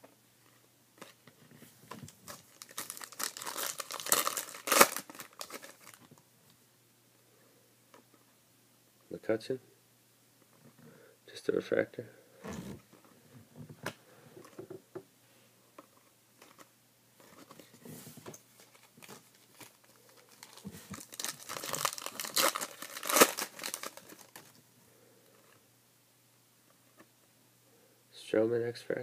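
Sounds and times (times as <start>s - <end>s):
foil wrapper tearing and crinkling: 2.3s - 6.0s, 18.7s - 24.6s.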